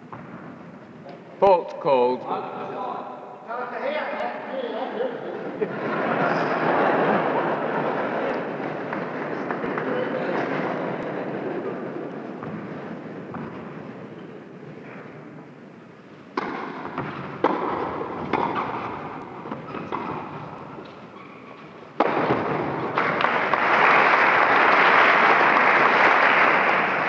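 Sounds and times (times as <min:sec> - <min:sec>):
racket hitting tennis ball: 0:16.3 - 0:21.1, 0:21.9 - 0:23.6
audience applause: 0:22.7 - 0:27.0.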